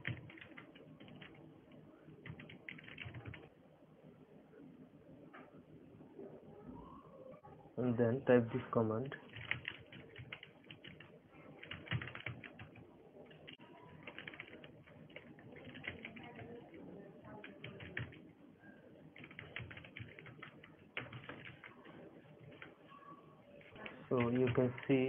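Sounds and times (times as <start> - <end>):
computer keyboard typing: 0.0 - 1.4, 2.2 - 3.5, 9.2 - 16.8, 17.4 - 18.3, 19.1 - 22.7, 23.6 - 25.0.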